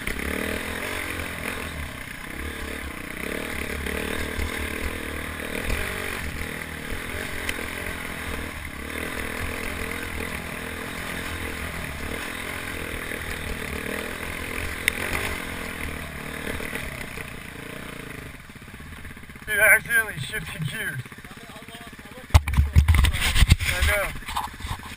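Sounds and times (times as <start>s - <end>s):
motorcycle engine under load: 0.0s - 24.9s
clatter over rocks: 22.3s - 24.9s.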